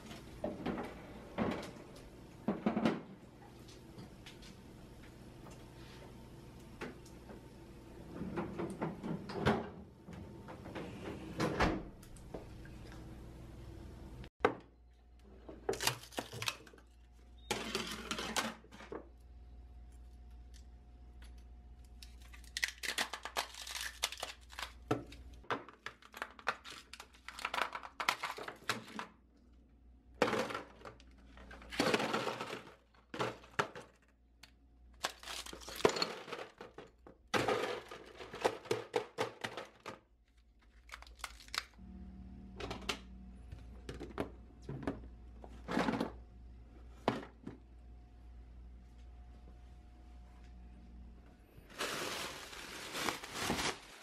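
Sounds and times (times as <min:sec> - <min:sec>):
ice cubes clattering into plastic bin: 0:17.5 - 0:18.9, 0:30.2 - 0:34.0, 0:35.0 - 0:40.1
ice cubes cracking from trays: 0:22.0 - 0:29.1, 0:30.2 - 0:41.8.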